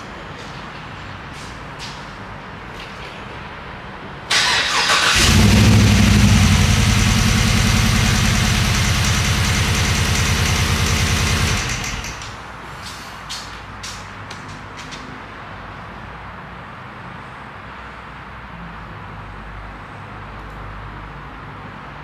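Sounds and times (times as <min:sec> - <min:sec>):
starter motor cranking: 0:04.3 - 0:12.4
engine running with pulsing beat: 0:05.2 - 0:12.4.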